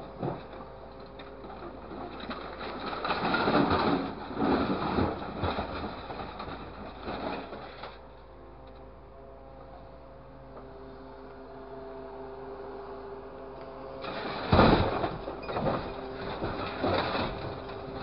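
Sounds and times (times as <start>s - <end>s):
truck engine and hydraulics hum: 0.0s - 18.0s
grapple scraping scrap metal: 0.1s - 8.1s, 14.0s - 18.0s.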